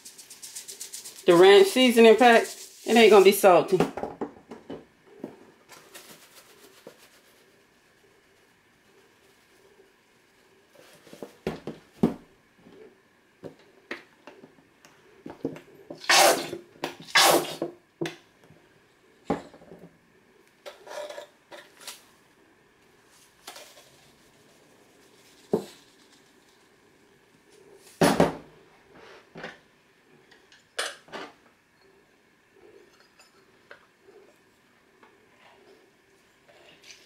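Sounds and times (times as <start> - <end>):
seasoning shakers rattling: 0.0 - 3.8, 5.7 - 9.6, 23.4 - 26.8.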